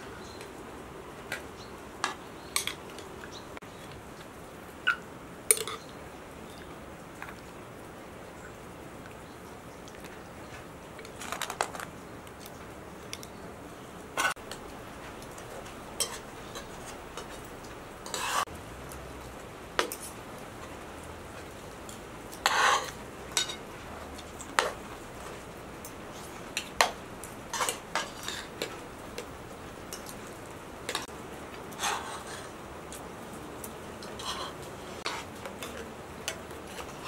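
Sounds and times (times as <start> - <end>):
metal spoons scraping cooking pots: 15.2 - 18.5, 22.3 - 23.6, 26.1 - 28.8, 31.7 - 32.5, 34.0 - 37.0.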